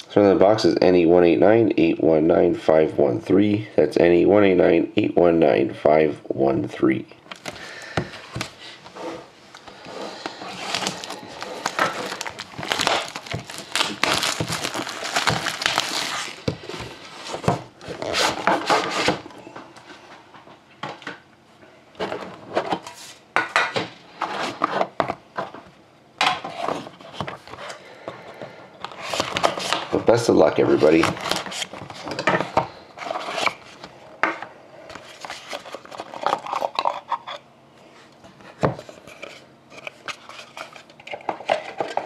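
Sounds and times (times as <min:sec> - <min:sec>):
cardboard and plastic rustling: 0:07.3 - 0:19.8, 0:28.8 - 0:33.9, 0:34.9 - 0:37.2, 0:38.3 - 0:42.0.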